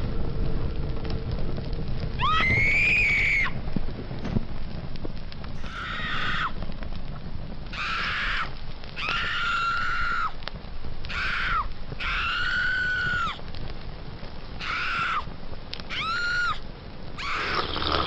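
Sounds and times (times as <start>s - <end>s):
low rumbling noise: 0.0s - 18.0s
woman screaming: 15.9s - 16.6s.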